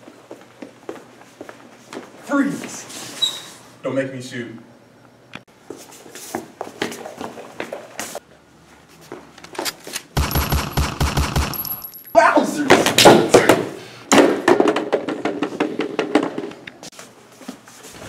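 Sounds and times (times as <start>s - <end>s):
machine-gun fire: 10.2s - 11.8s.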